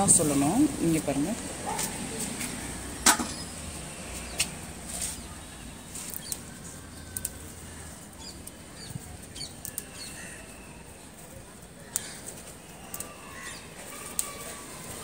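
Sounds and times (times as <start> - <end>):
leaves rustling: 0.0 - 15.0
stems snapping: 5.9 - 7.5, 8.2 - 10.2, 11.8 - 14.6.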